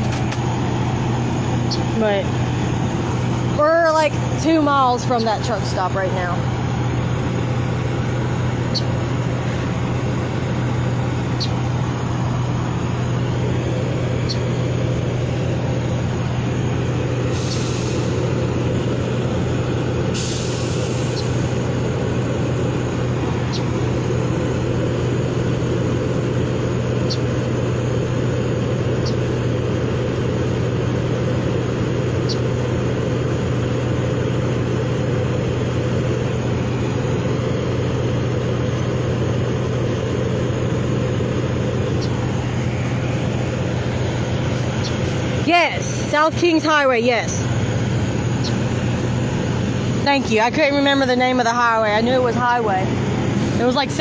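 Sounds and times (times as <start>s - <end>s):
low rumble of motor vehicles: 0.0s - 54.0s
short hisses: 17.3s - 18.3s, 20.1s - 21.6s.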